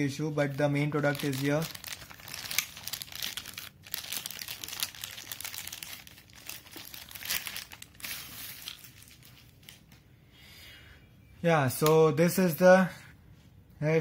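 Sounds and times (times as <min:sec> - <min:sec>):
plastic bag crinkling: 0:00.4 - 0:10.0.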